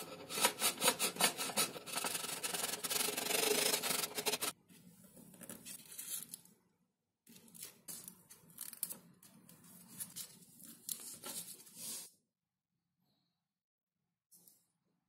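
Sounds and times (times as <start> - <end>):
foam pieces rubbing together: 0.3 - 4.5.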